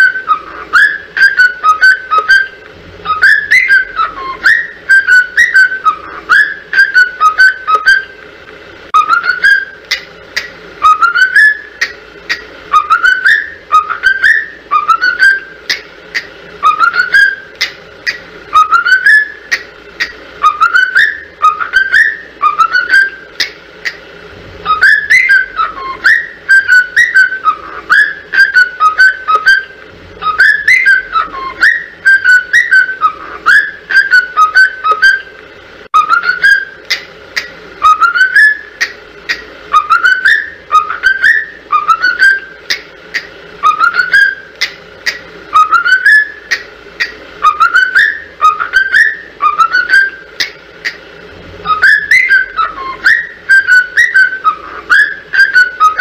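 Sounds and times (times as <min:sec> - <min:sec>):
whistled tune: 0:00.0 - 0:08.1, 0:09.0 - 0:10.0, 0:10.8 - 0:11.9, 0:12.7 - 0:15.8, 0:16.6 - 0:19.6, 0:20.4 - 0:23.4, 0:24.6 - 0:35.3, 0:36.0 - 0:36.8, 0:37.8 - 0:38.7, 0:39.7 - 0:42.8, 0:43.6 - 0:44.5, 0:45.5 - 0:46.6, 0:47.4 - 0:50.5, 0:51.6 - 0:56.0.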